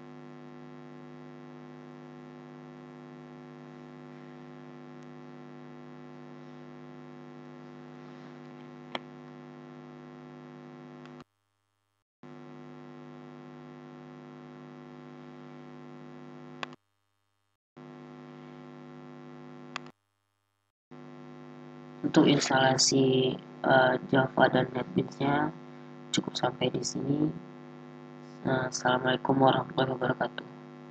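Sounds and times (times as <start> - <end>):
electrical mains hum: 0.1 - 11.2, 17.8 - 19.9, 21.0 - 30.9.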